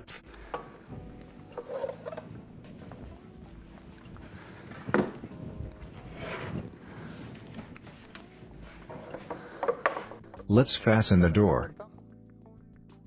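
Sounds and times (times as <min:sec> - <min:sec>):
shuffling and rustling: 0:00.6 - 0:10.2.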